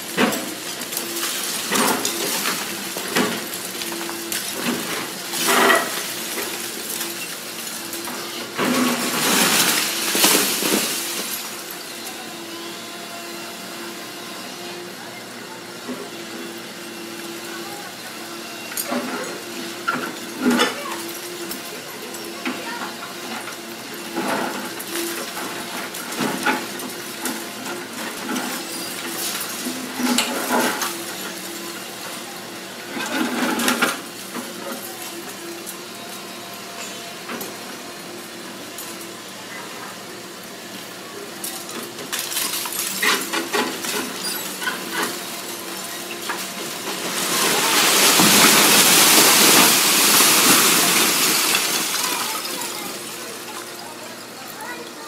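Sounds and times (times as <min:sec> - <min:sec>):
falling debris knocks and crunches: 0:00.0 - 0:11.8, 0:42.0 - 0:53.8
excavator running: 0:00.0 - 0:55.0
rubble pouring down: 0:08.7 - 0:11.6, 0:46.4 - 0:53.8.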